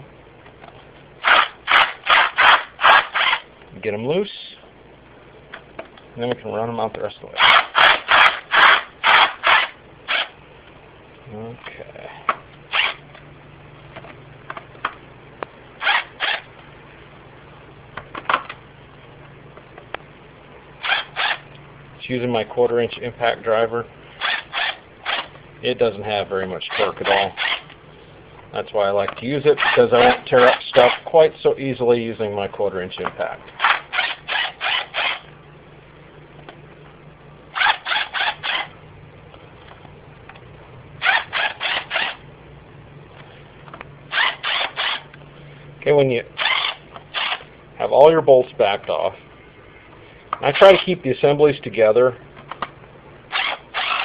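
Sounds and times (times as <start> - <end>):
impact driver bursts: 1.2 - 3.5, 7.4 - 10.4, 12.7 - 13.0, 15.8 - 16.5, 20.8 - 21.4, 24.2 - 25.4, 26.7 - 27.7, 29.6 - 31.1, 33.6 - 35.3, 37.6 - 38.7, 41.0 - 42.2, 44.1 - 45.1, 46.4 - 47.5, 53.3 - 54.0.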